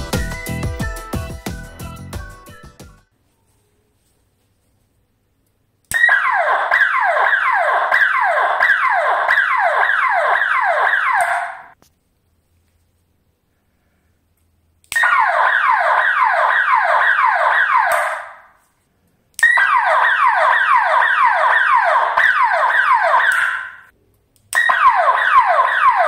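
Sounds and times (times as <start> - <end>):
alarm siren sweeps: 5.9 - 11.8, 15.0 - 18.6, 19.4 - 23.9, 24.6 - 26.0.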